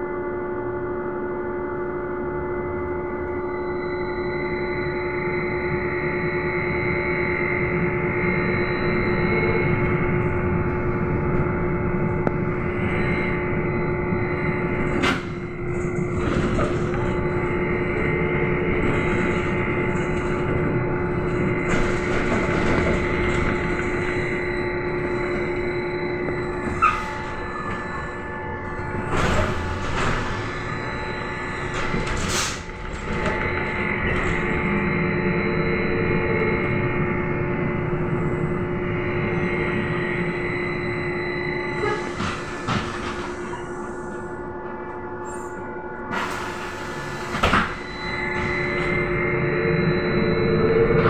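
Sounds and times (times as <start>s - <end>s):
road rumble: 8.9s - 39.6s.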